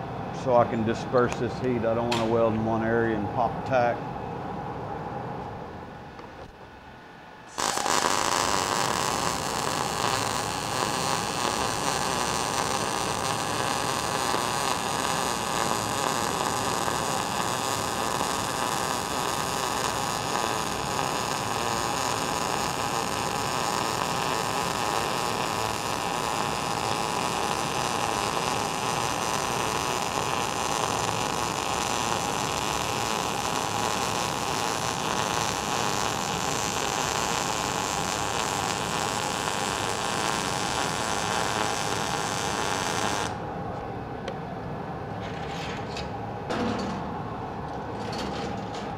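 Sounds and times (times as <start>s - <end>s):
welder arc crackling: 7.5s - 43.4s.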